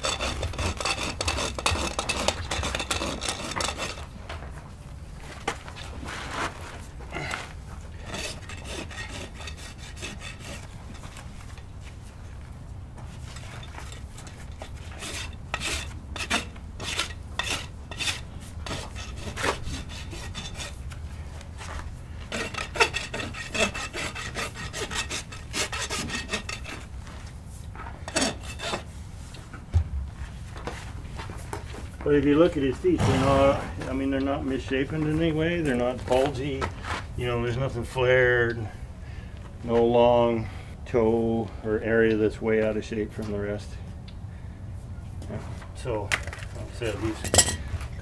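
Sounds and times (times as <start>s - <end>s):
hoof rasp scraping: 0.0s - 4.6s, 5.2s - 29.6s, 46.3s - 48.0s.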